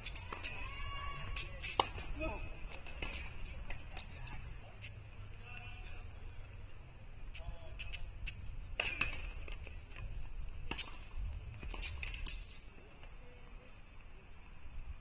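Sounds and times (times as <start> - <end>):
tennis balls struck and bouncing: 1.4 - 4.4, 8.7 - 10.1, 10.7 - 12.5.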